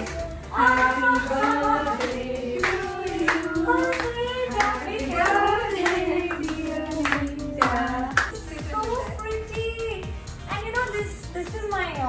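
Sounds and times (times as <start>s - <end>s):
group of people singing: 0.0s - 8.3s
hands clapping along: 0.0s - 8.4s.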